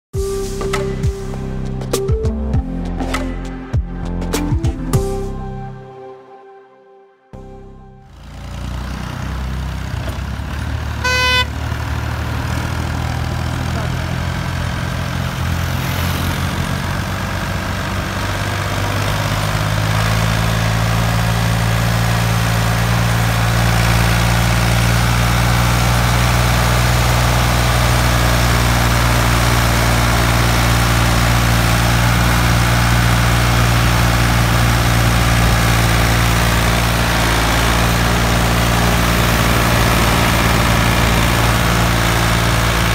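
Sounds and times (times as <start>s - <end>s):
tractor engine running: 7.4s - 42.9s
horn toot: 11.0s - 11.6s.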